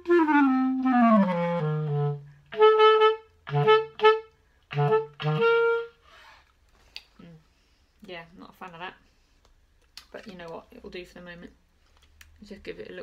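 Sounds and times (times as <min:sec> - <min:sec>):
clarinet playing: 0:00.0 - 0:06.1.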